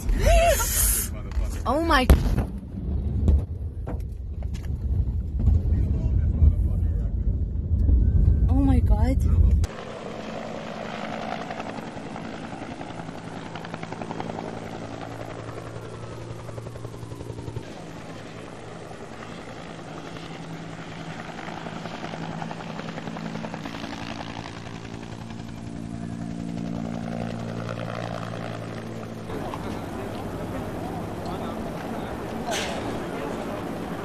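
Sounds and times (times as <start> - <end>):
low engine drone: 0.0 - 10.0, 24.4 - 34.0
helicopter rotor chopping: 8.5 - 34.0.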